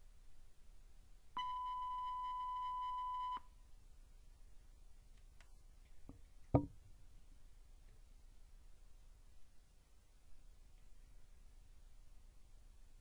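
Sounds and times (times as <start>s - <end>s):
knocks: 6.1s - 6.8s.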